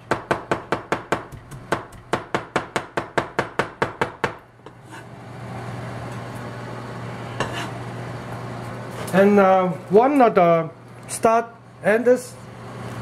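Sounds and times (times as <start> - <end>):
cleaver chopping on cutting board: 0.1 - 4.4.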